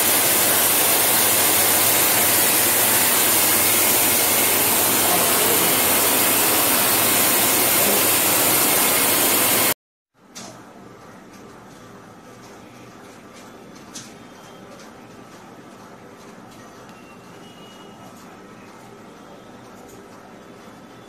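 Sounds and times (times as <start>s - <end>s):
fogger blower motor running: 0.0s - 9.8s.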